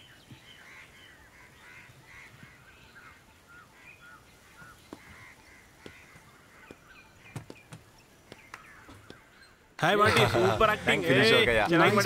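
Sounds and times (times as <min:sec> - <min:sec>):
birds chirping: 0:00.0 - 0:12.0
soft taps: 0:04.6 - 0:09.2.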